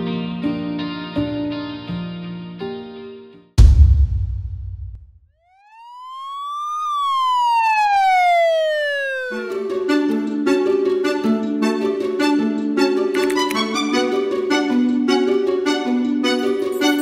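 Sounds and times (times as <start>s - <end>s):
music: 0.0s - 4.4s, 9.4s - 17.0s
deep boom: 3.6s - 5.2s
fire engine siren wail: 5.5s - 10.2s.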